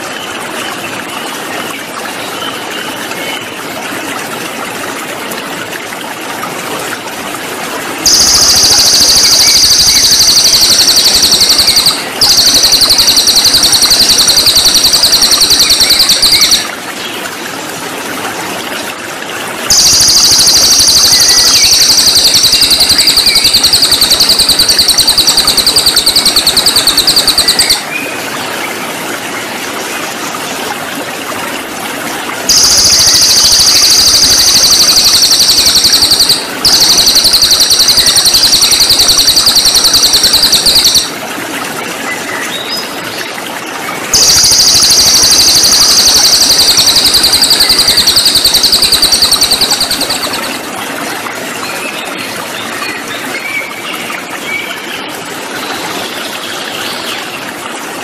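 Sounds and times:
flowing water rushing: 0.0s - 58.0s
songbird trilling: 8.1s - 16.7s, 19.7s - 28.0s, 32.5s - 41.2s, 44.2s - 50.6s.

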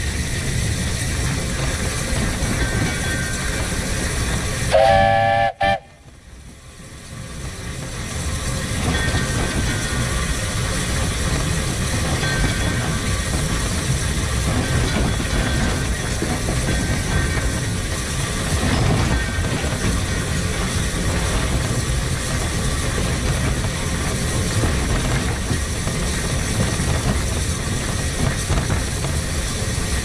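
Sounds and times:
steam tram running on track: 0.0s - 30.0s
steam whistle blast: 4.7s - 6.0s.

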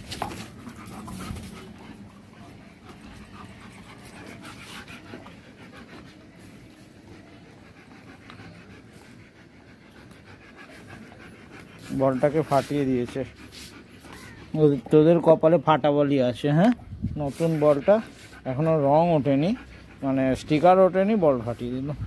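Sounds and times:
dogs panting: 0.0s - 22.0s.

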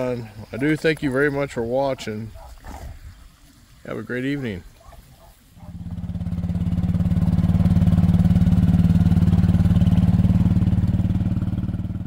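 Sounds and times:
vehicle engine pulsing hum: 5.6s - 12.0s.

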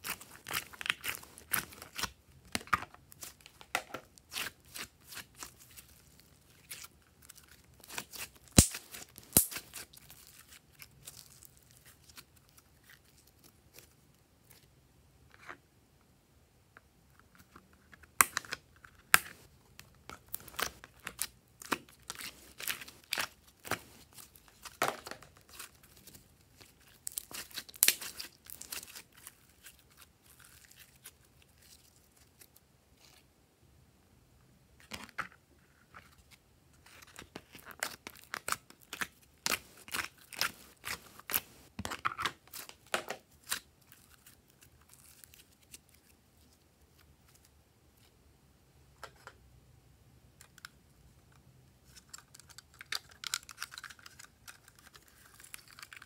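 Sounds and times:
slime popping and crackling: 7.8s - 11.2s, 26.6s - 29.7s
plastic mold crinkling: 51.8s - 56.0s.

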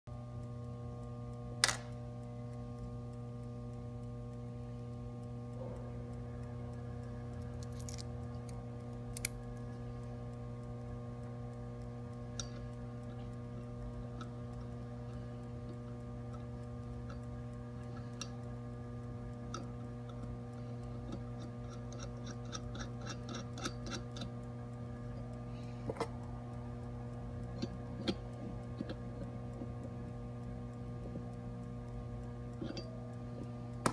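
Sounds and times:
electrical hum: 0.1s - 33.9s
small metallic clicks and taps: 7.3s - 10.1s, 11.8s - 24.4s, 27.4s - 29.9s, 30.7s - 33.9s.

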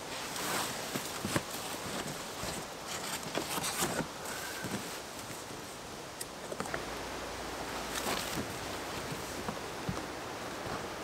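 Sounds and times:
cardboard rustling and scraping: 0.0s - 5.5s, 7.9s - 10.9s.

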